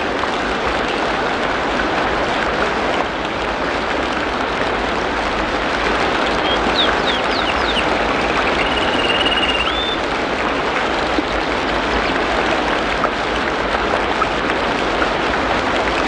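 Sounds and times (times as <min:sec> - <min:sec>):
rain falling: 0:00.0 - 0:16.0
bird chirping and trilling: 0:06.2 - 0:10.0.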